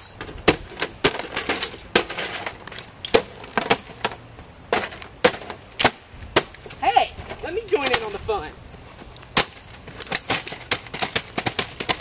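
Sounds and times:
metal box cracking underfoot: 0.2s - 8.2s, 9.2s - 12.0s
person shouting: 6.8s - 7.2s.

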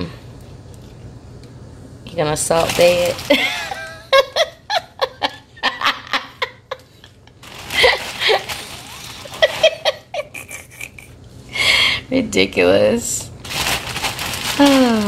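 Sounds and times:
person laughing: 3.3s - 11.2s.

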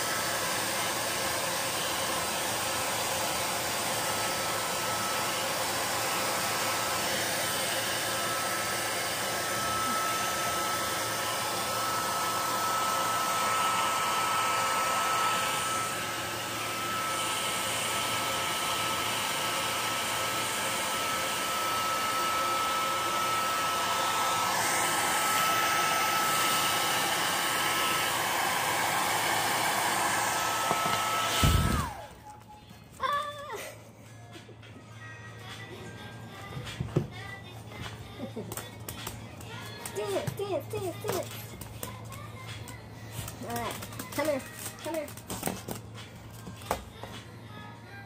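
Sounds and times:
hair dryer blowing: 0.0s - 32.4s.

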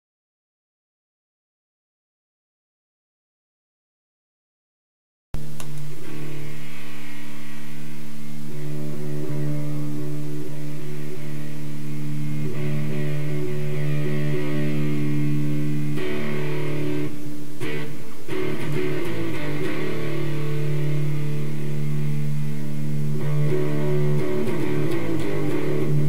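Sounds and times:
fuzz electric guitar: 5.4s - 26.0s.

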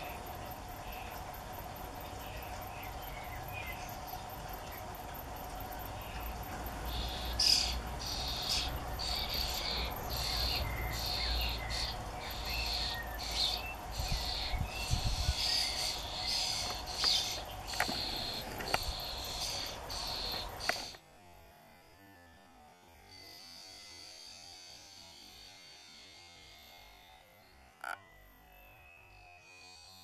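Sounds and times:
nestlings begging calls: 6.0s - 21.0s.

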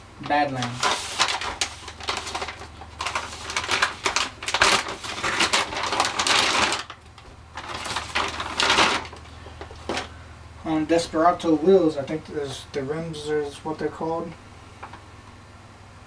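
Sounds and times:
steady low hum: 0.0s - 16.0s
plastic bags crinkling: 0.2s - 10.2s.

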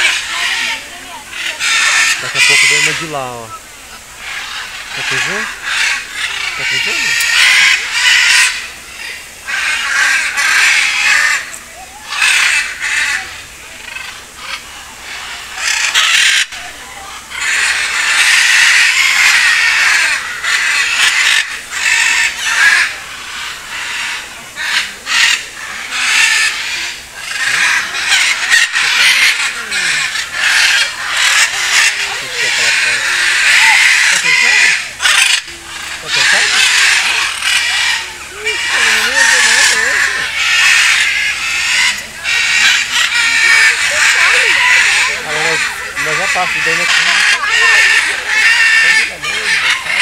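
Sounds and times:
macaws squawking: 0.0s - 50.0s.

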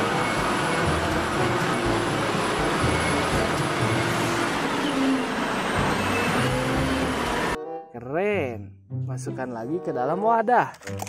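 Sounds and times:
wheel loader diesel engine under load: 0.0s - 7.6s.

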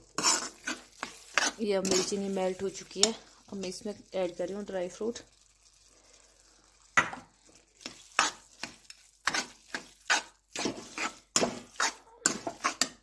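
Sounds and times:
spatula scraping a pan: 0.0s - 3.8s, 7.4s - 13.0s
food sizzling in a pan: 0.0s - 13.0s.

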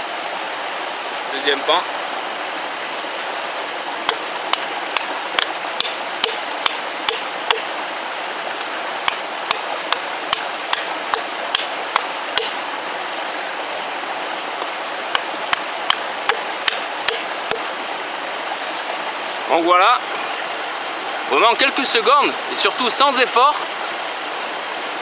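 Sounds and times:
knife chopping wooden stake: 4.1s - 7.7s, 9.0s - 12.6s, 14.6s - 17.7s.

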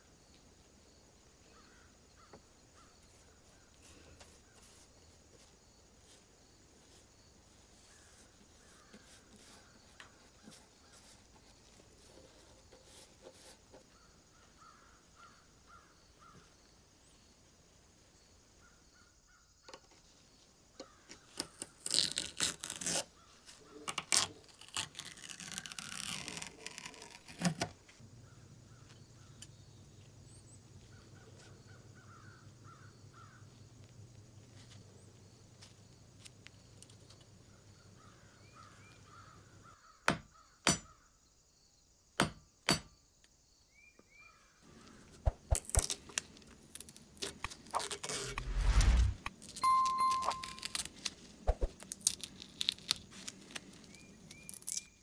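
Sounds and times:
faint bird calls: 1.4s - 4.8s, 13.9s - 17.2s, 28.2s - 33.6s, 37.4s - 41.1s
tape crackling and tearing: 21.3s - 23.1s, 23.8s - 27.7s, 45.5s - 55.0s.

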